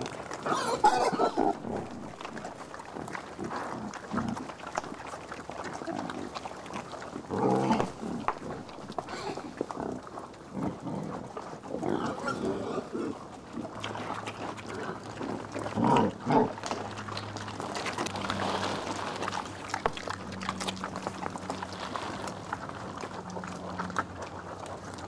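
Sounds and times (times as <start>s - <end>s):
wild boars grunting: 0.0s - 4.8s, 5.6s - 17.0s.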